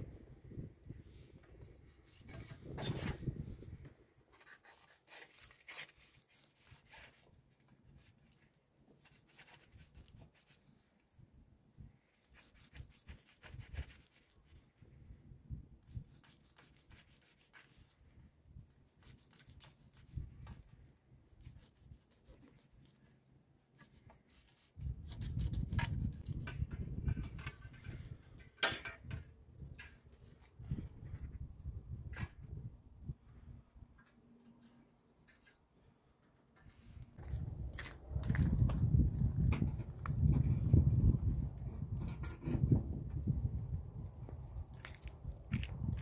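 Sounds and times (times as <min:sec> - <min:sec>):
knife scraping fish skin: 0:04.4 - 0:07.4, 0:09.0 - 0:10.9, 0:12.1 - 0:14.6, 0:15.9 - 0:18.0, 0:18.8 - 0:20.6, 0:21.3 - 0:23.1, 0:23.8 - 0:26.5.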